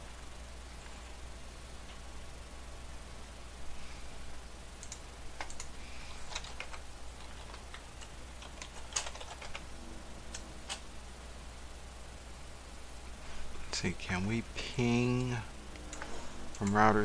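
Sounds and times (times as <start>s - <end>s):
low steady hum: 0.0s - 17.0s
keyboard typing: 4.8s - 10.8s.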